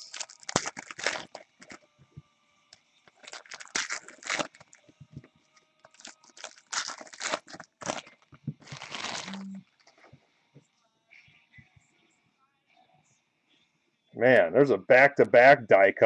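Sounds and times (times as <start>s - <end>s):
plastic card holders crinkling: 0.0s - 1.8s, 3.1s - 4.8s, 5.8s - 10.0s.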